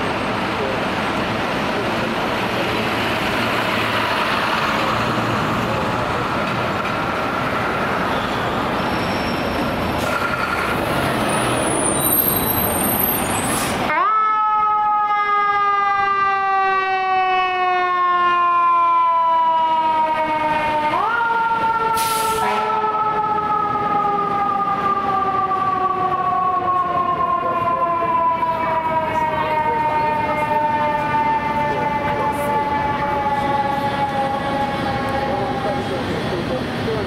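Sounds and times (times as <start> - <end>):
heavy truck passing: 0.0 - 13.9
fire engine siren wailing: 0.0 - 37.0
street traffic: 0.0 - 37.0.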